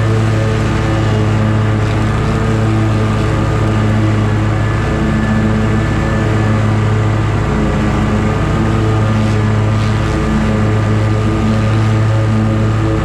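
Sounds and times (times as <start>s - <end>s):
lawn mower engine running: 0.0s - 13.0s
mower blades cutting grass: 0.0s - 13.0s.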